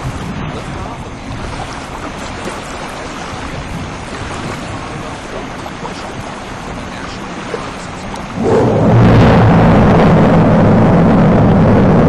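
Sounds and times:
rocket engines rushing roar: 0:06.9 - 0:12.0
deep rumble: 0:08.2 - 0:12.0.

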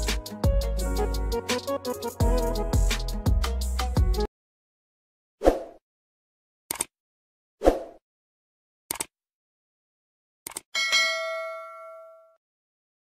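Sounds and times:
notification bell ding: 0:10.8 - 0:12.4.

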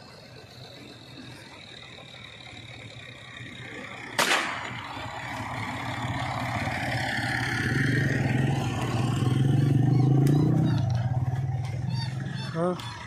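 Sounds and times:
vehicle engine running: 0:00.0 - 0:13.0
shotgun shot with echo: 0:04.2 - 0:04.8.

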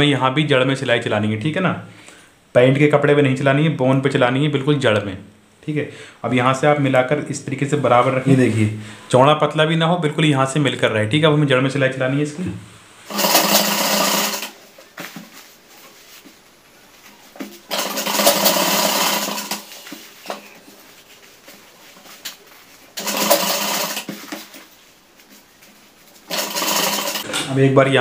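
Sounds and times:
sewing machine stitching: 0:13.1 - 0:14.6, 0:17.7 - 0:19.8, 0:23.0 - 0:24.4, 0:26.3 - 0:27.2.

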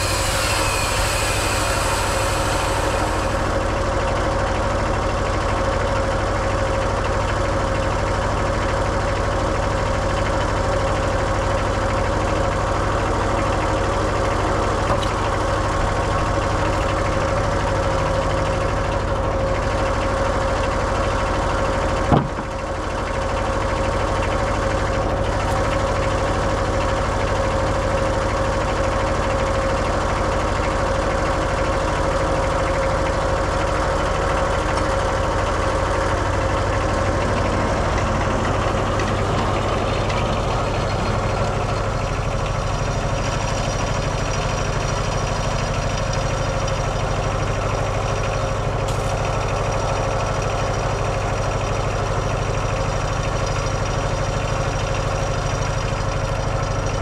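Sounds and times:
high thin whine: 0:00.0 - 0:05.2
diesel engine running: 0:00.0 - 0:57.0.

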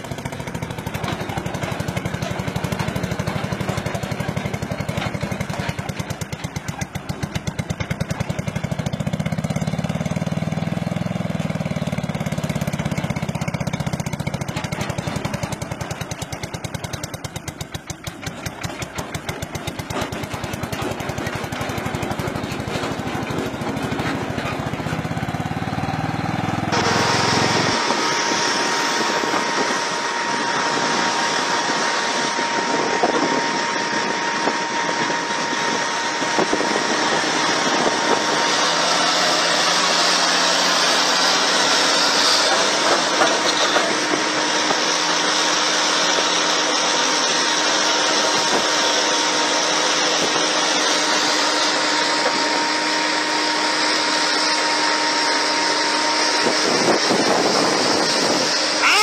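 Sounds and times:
diesel engine running: 0:00.0 - 0:59.0
small engine running: 0:00.0 - 0:59.0.

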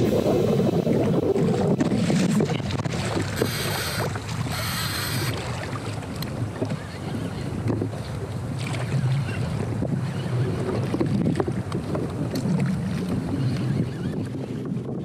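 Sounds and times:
hissing rushes of water: 0:00.0 - 0:05.6
water sloshing against kayak hull: 0:00.0 - 0:15.0
wind buffeting microphone: 0:00.0 - 0:15.0.

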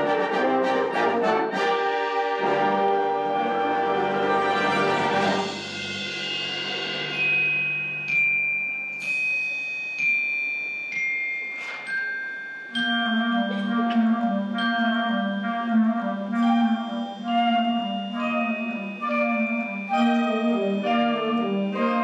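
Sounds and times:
wind band chords: 0:00.0 - 0:08.3, 0:12.7 - 0:22.0
ringing mallet percussion notes: 0:05.4 - 0:22.0.

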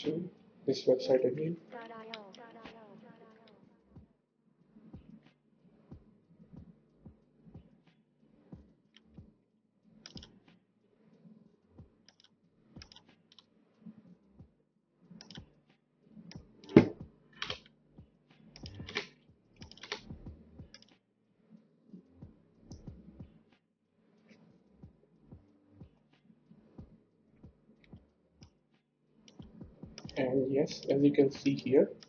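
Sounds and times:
mouse clicks: 0:10.0 - 0:10.3, 0:12.1 - 0:13.4, 0:15.2 - 0:15.5, 0:16.3 - 0:17.7, 0:18.5 - 0:20.1, 0:20.7 - 0:21.0, 0:29.3 - 0:30.2
keyboard keystrokes: 0:10.1 - 0:10.3, 0:12.1 - 0:13.4, 0:15.2 - 0:15.4, 0:18.6 - 0:20.0.

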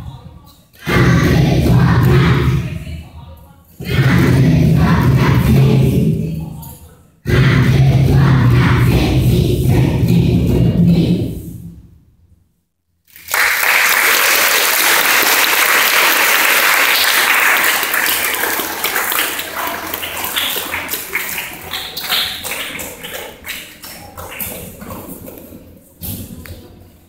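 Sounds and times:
audience applause: 0:13.1 - 0:24.7.

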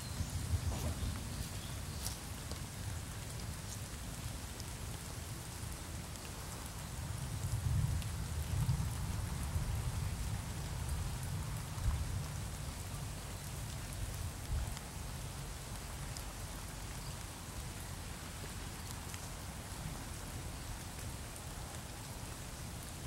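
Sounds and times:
rain falling: 0:00.0 - 0:23.0
rain drop ticks: 0:01.5 - 0:23.0.

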